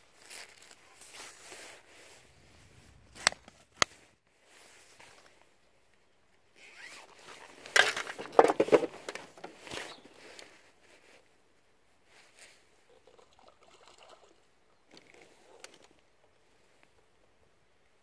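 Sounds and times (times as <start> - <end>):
rasping crackling handling noise: 0.1 - 4.2, 6.6 - 10.6
sharp clicks of fishing gear: 2.9 - 4.1, 6.9 - 10.5.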